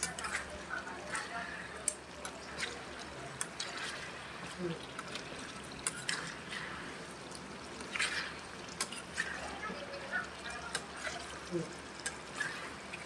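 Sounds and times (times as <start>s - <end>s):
metal spatula scraping wok: 0.0s - 4.3s
gravy sloshing: 0.0s - 13.0s.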